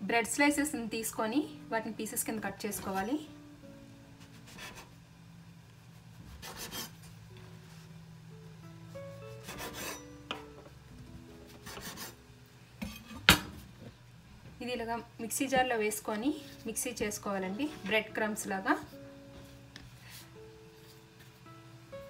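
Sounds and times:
faint background music: 0.0s - 22.0s
knife sawing through bread: 4.3s - 4.9s, 6.3s - 7.0s, 9.4s - 10.0s.

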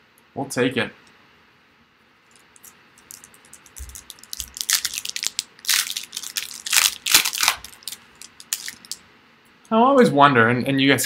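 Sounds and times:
foil wrapper crinkling: 2.3s - 9.0s.

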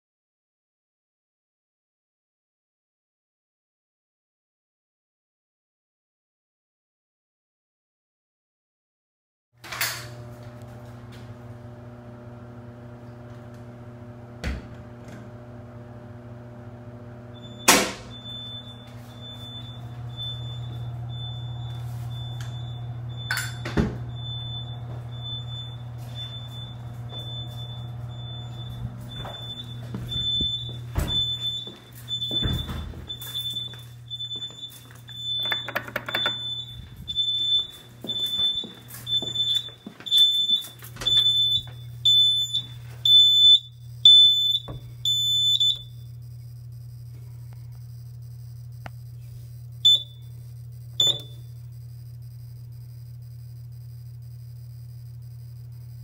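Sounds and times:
electrical hum: 9.6s - 56.0s
fire alarm beeping: 17.3s - 56.0s
alarm sounder click: 17.4s - 55.8s
footsteps: 25.9s - 35.5s, 36.4s - 41.8s.

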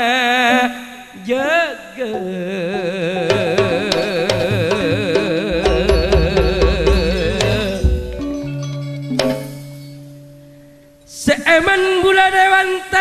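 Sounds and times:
drum beats: 2.1s - 10.4s
struck metallophones: 2.2s - 11.2s
deep bass: 5.5s - 10.4s.

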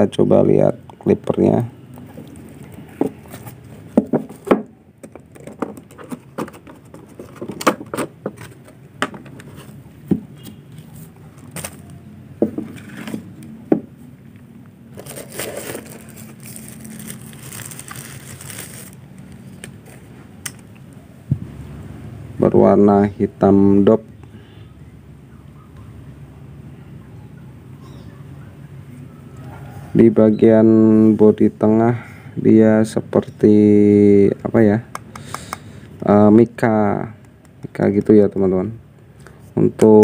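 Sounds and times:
handling clicks and knocks: 2.7s - 10.6s
plastic crinkling and rustling: 10.4s - 12.0s, 14.9s - 20.2s.

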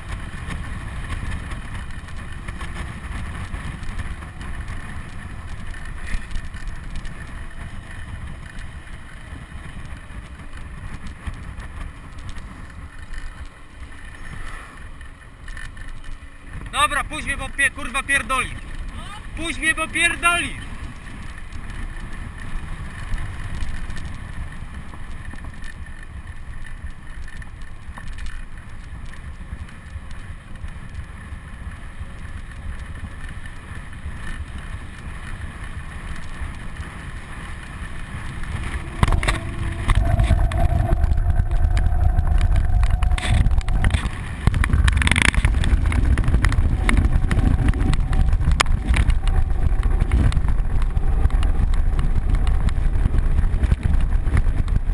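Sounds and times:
tyres rolling on asphalt: 0.0s - 54.9s
wind buffeting microphone: 36.6s - 54.9s.

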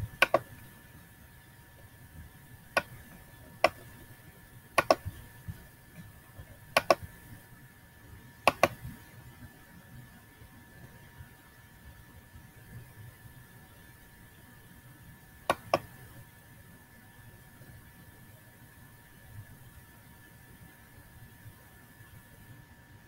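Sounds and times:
computer mouse clicking: 0.0s - 0.6s, 2.7s - 4.0s, 4.8s - 5.3s, 6.7s - 7.1s, 8.5s - 8.9s, 15.5s - 16.0s.

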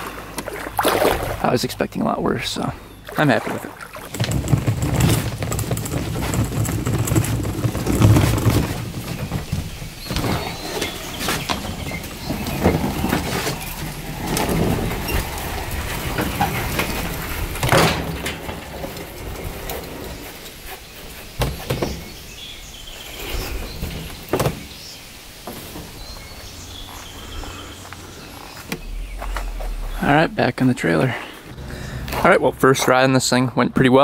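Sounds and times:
boat cradle rolling on casters: 3.6s - 27.1s.

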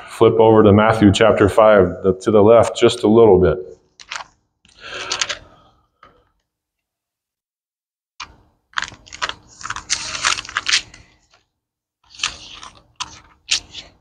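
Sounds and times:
thin pages turning and rustling: 3.9s - 4.4s, 8.2s - 14.0s.

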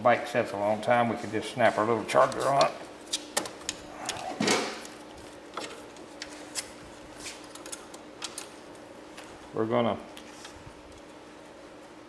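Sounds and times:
clicks and rustles of wires: 2.1s - 9.4s, 10.1s - 11.2s.

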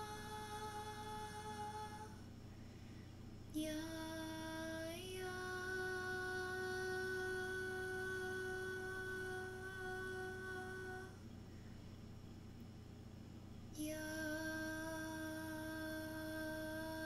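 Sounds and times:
woman singing a wordless note: 0.0s - 2.2s, 3.5s - 11.2s, 13.8s - 17.0s.

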